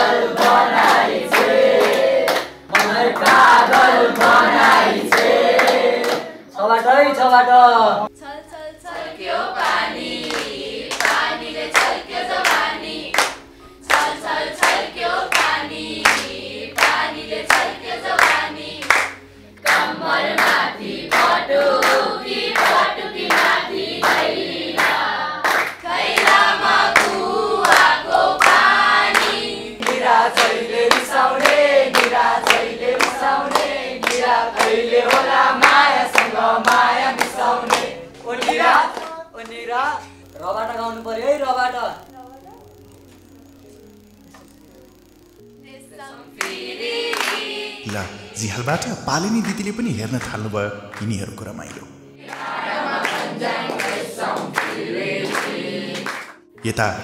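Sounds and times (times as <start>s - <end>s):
hands clapping a beat: 0.3s - 6.4s, 9.6s - 40.2s, 46.4s - 57.0s
children singing in chorus: 8.6s - 39.2s, 45.8s - 48.2s, 52.2s - 56.3s.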